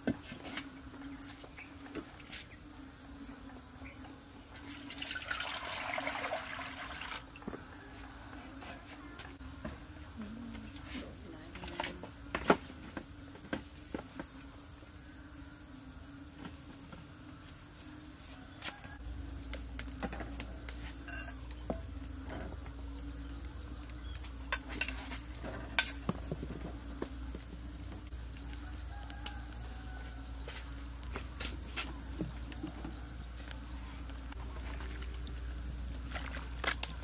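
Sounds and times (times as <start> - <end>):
steady low hum: 7.6 - 37.0.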